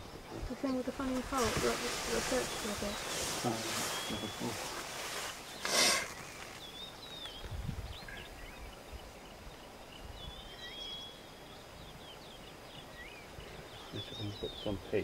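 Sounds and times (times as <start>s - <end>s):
faint bird chirps: 0.0s - 15.0s
short hissing burst: 5.6s - 6.2s.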